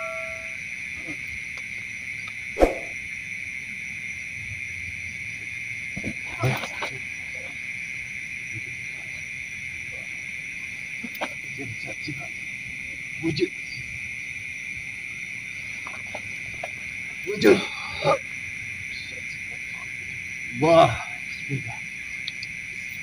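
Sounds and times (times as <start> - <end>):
crickets trilling: 0.0 - 23.0
brief low sounds: 2.6 - 3.0.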